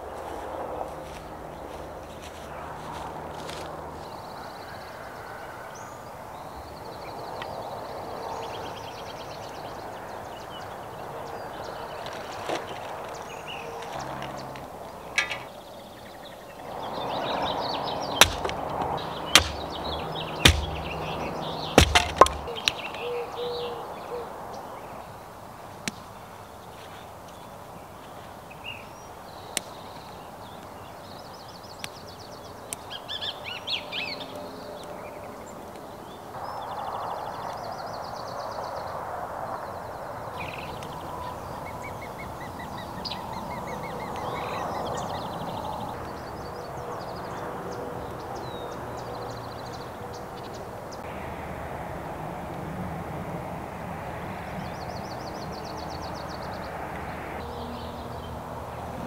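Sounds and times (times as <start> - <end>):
steady outdoor rush: 0.0 - 5.2, 9.7 - 23.0
birds chirping and trilling: 0.2 - 25.2
sharp clicks or knocks: 15.2 - 15.6, 18.2 - 19.8, 20.5 - 21.0, 21.8 - 22.9.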